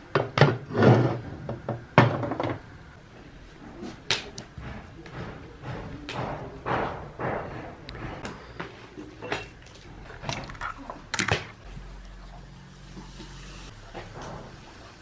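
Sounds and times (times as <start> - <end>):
knocks and thuds: 4.6 - 8.3.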